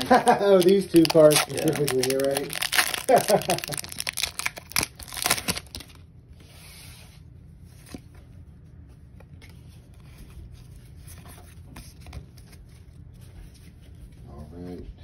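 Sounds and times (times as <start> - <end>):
foil wrapper crinkling: 0.0 - 6.0
cards rubbing and rustling: 0.1 - 6.0.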